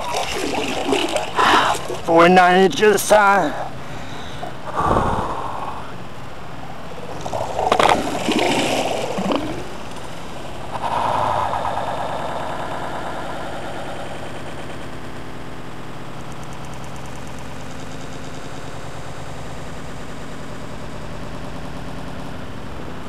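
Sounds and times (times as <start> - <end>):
fish thrashing in water: 0.0 - 2.2, 6.9 - 13.1
water splashing and sloshing: 0.0 - 2.3, 6.9 - 10.9
steady rushing background: 0.0 - 21.9.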